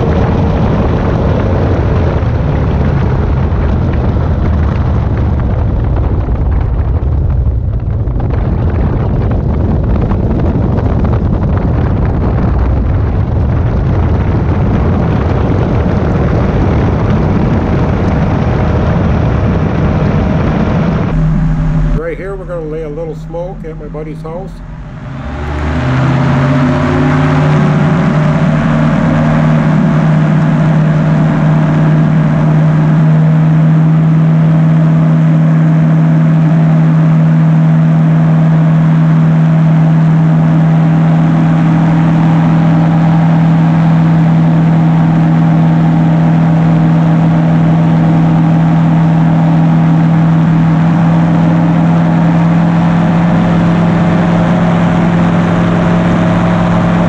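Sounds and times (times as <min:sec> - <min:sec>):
engine and propeller drone: 0:00.0 - 0:57.0
rushing air: 0:20.0 - 0:32.4.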